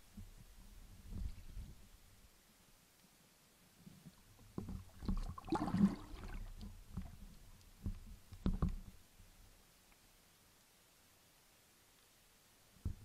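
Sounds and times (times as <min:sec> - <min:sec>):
muffled underwater knocks: 0:07.8 - 0:09.0.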